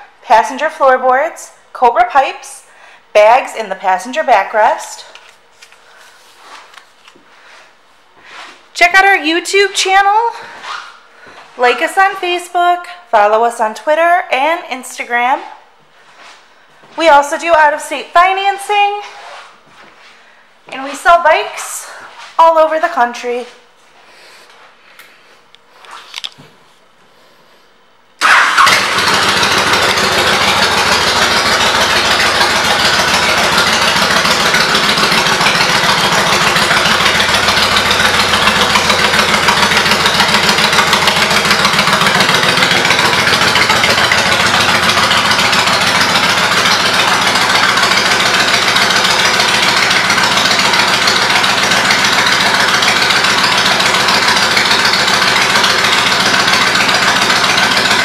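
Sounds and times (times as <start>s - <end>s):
motorcycle engine starting and idling: 28.2s - 58.0s.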